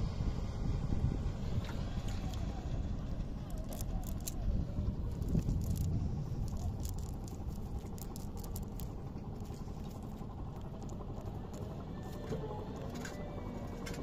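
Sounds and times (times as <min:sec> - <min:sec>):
steady low rumble: 0:00.0 - 0:14.0
net rustling and clicking: 0:03.4 - 0:12.2.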